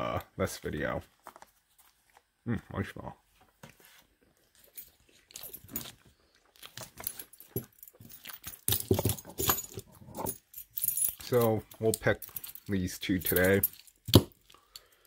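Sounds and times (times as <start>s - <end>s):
keys jangling against metal locks: 4.7s - 6.0s, 6.6s - 15.0s.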